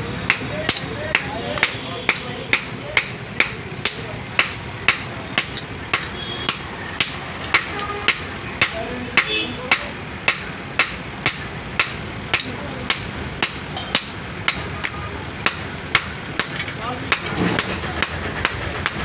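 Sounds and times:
hammer striking iron on anvil: 0.2s - 19.0s.

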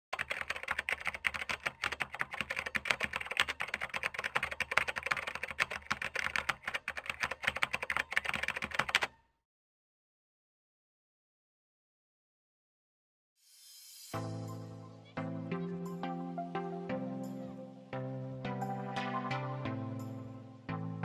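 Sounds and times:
computer keyboard typing: 0.2s - 9.1s.

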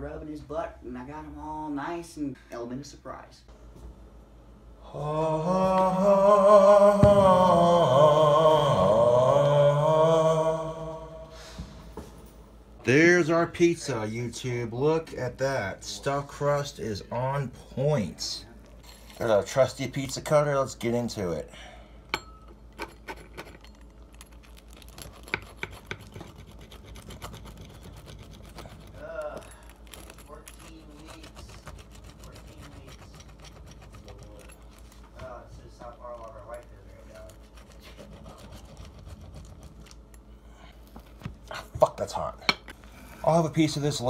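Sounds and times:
man singing a held note: 4.8s - 11.6s
knock: 7.0s - 7.4s
pizza cutter crackling through crust: 22.8s - 40.2s.

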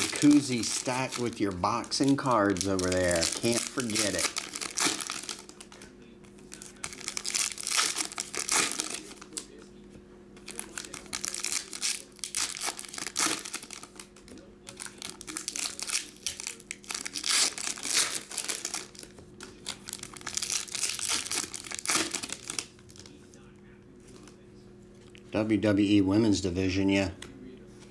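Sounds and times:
foil wrappers tearing and crinkling: 0.0s - 5.8s, 6.4s - 9.6s, 10.4s - 23.2s
faint low hum: 0.0s - 27.9s.

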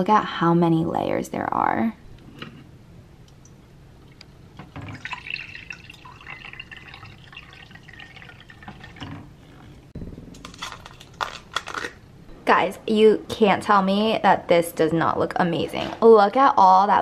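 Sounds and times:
water pouring into a mug: 4.8s - 9.8s.

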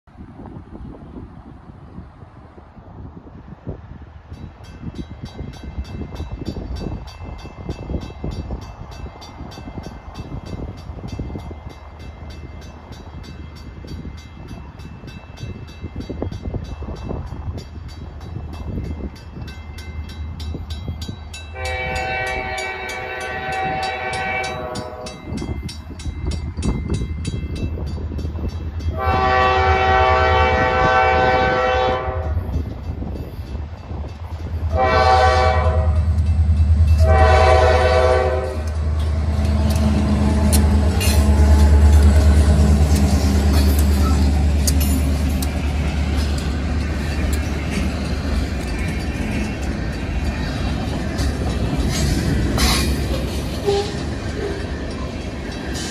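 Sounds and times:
diesel locomotive rumble: 0.1s - 55.9s
train air horn blasts: 21.5s - 25.3s, 28.9s - 32.6s, 34.7s - 36.2s, 36.9s - 38.8s, 53.6s - 54.1s.

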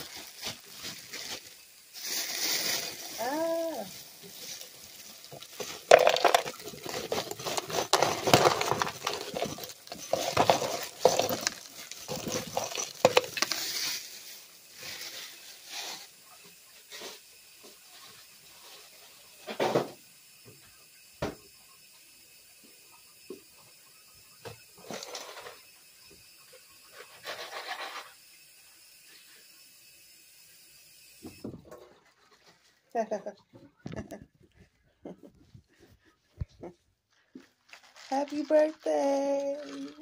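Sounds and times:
ice cubes clinking: 0.0s - 15.5s, 37.6s - 40.0s
plastic bag crinkling: 0.0s - 16.0s, 37.1s - 40.0s.

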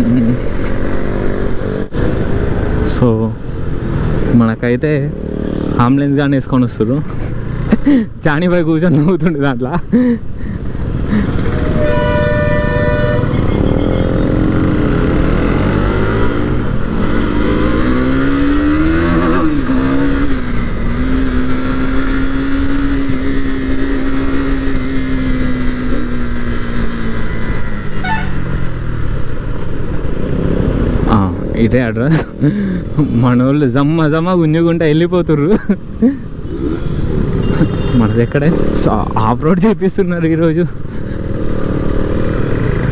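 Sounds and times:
motorcycle engine: 0.0s - 6.4s, 10.6s - 31.6s, 35.7s - 39.4s, 40.4s - 42.9s
horn sounding: 11.6s - 14.6s, 28.0s - 28.5s.

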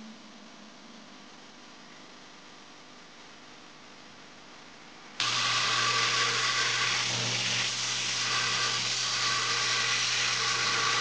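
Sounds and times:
belt grinder whirring: 5.2s - 11.0s.

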